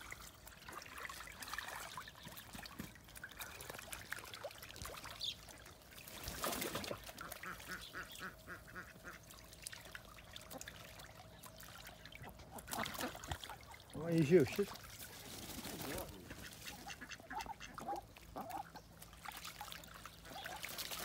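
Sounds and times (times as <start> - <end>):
water splash: 0.0 - 7.8, 9.3 - 17.0, 19.1 - 21.0
faint water trickle: 0.0 - 21.0
ducks quacking: 6.8 - 9.3, 12.2 - 18.9.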